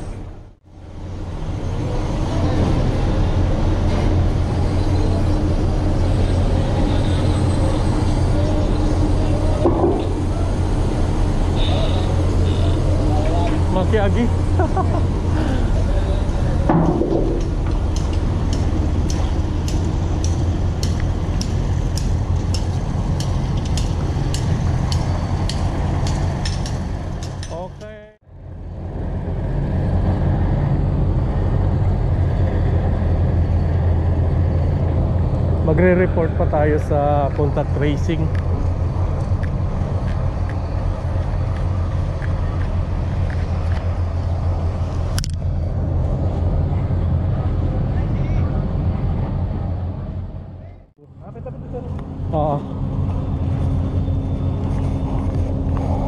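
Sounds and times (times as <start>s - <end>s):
low engine rumble: 0.0s - 56.0s.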